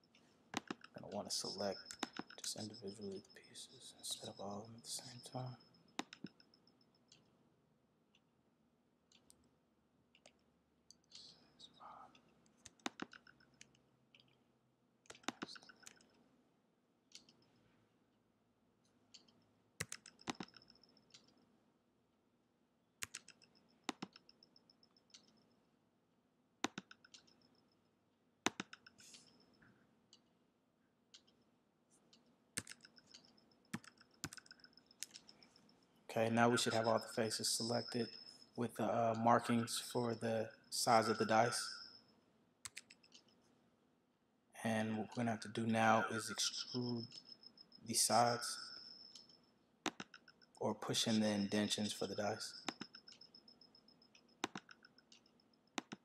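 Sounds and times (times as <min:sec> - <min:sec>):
computer mouse clicking: 0:00.0 - 0:03.2, 0:06.0 - 0:07.3, 0:10.1 - 0:11.4, 0:12.1 - 0:14.4, 0:15.0 - 0:16.2, 0:17.1 - 0:17.6, 0:19.1 - 0:21.4, 0:23.0 - 0:25.5, 0:26.6 - 0:27.5, 0:28.4 - 0:29.5, 0:31.1 - 0:31.4, 0:32.1 - 0:35.6, 0:42.6 - 0:43.4, 0:46.3 - 0:50.6, 0:52.5 - 0:56.0.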